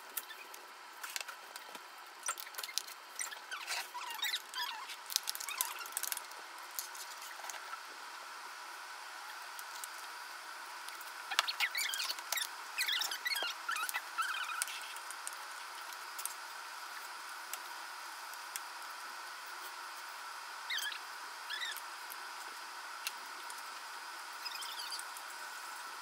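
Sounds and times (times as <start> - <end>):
pen squeaking on paper: 11.4 - 15.0.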